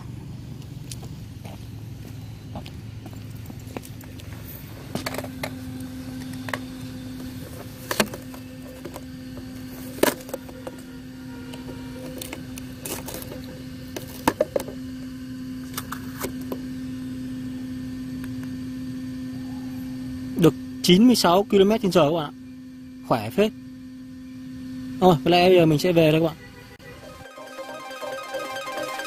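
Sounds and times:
steady low hum: 0.0 - 20.9.

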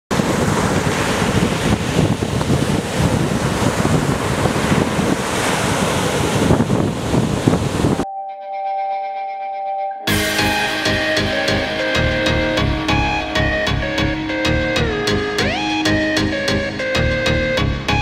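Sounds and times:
ocean surf breaking over rocks: 0.1 - 8.0
wind buffeting microphone: 0.1 - 8.0
sustained synthesizer music: 8.1 - 18.0.

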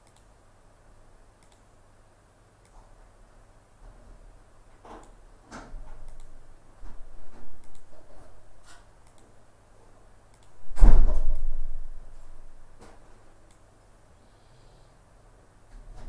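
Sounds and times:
computer mouse clicks: 0.0 - 0.3, 1.4 - 1.7, 6.1 - 6.3, 7.6 - 7.9, 9.0 - 9.3, 10.3 - 10.6
loud low thump with rush: 10.6 - 12.1.

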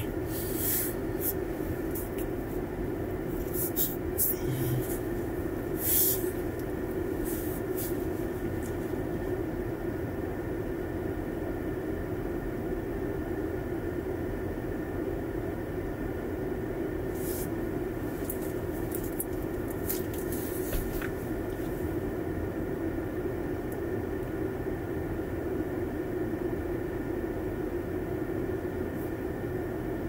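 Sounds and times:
car cabin hum: 0.0 - 10.0, 17.1 - 24.4.

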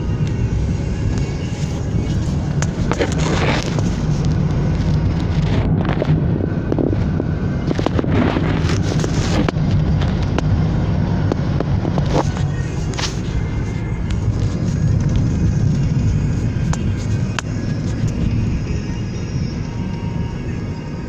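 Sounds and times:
car engine and tyre rumble: 0.0 - 21.0
crackles and knocks: 7.6 - 10.6.

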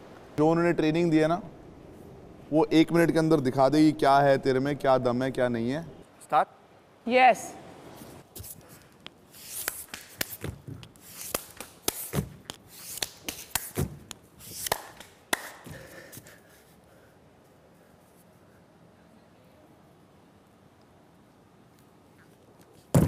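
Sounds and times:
hands and feet slapping on a floor mat: 8.3 - 16.4.

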